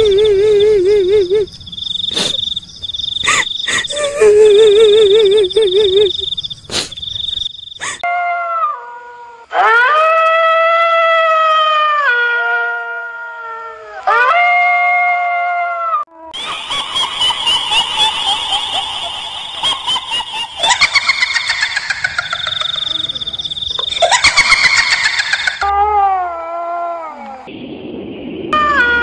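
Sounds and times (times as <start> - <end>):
crickets trilling: 0.0 - 8.0, 16.4 - 25.6.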